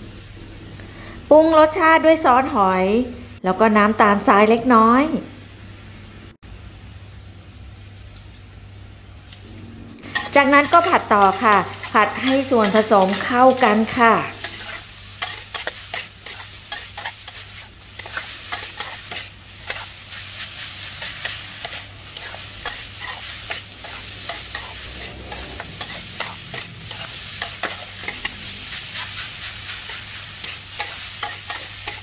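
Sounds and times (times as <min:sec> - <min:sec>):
metal spatula scraping a wok: 0:10.0 - 0:32.0
meat sizzling in oil: 0:10.1 - 0:32.0.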